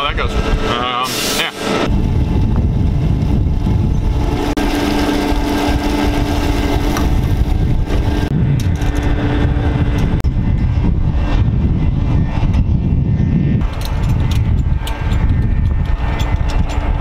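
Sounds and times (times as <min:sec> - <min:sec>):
wind on microphone: 0:00.0 - 0:00.8, 0:01.8 - 0:17.0
steady hum: 0:00.0 - 0:17.0.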